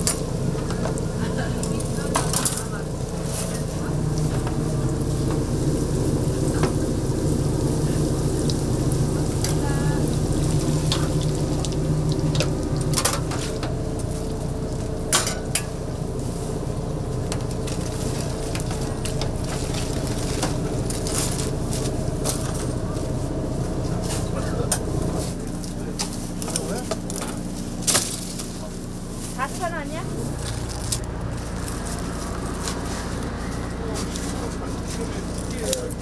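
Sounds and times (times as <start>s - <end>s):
low hum: 0.0s - 36.0s
food sizzling in hot oil: 4.1s - 16.9s.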